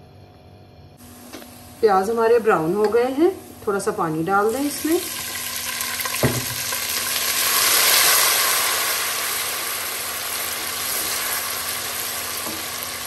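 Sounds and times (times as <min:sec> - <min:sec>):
oil and onions sizzling: 0:01.0 - 0:13.0.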